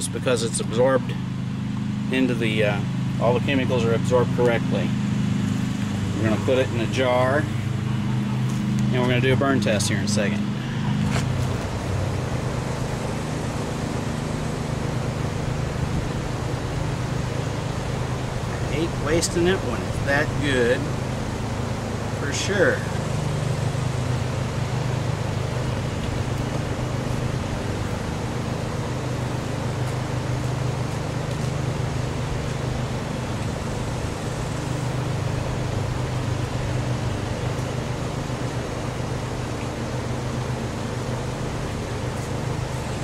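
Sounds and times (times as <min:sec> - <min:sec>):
motor humming: 0:01.1 - 0:43.0.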